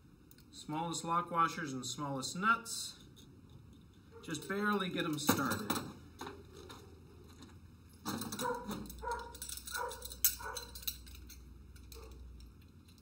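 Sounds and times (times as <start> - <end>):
metal clink: 3.0 - 6.0, 8.0 - 13.0.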